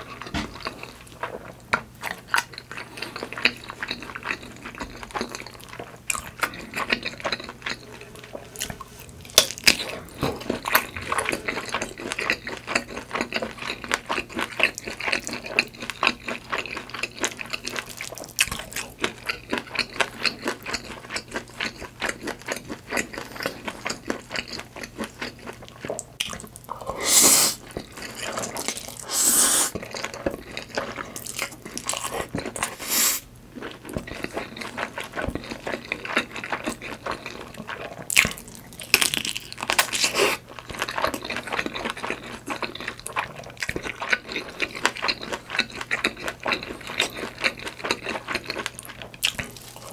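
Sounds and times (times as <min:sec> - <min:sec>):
slurping: 0:26.8 - 0:29.8.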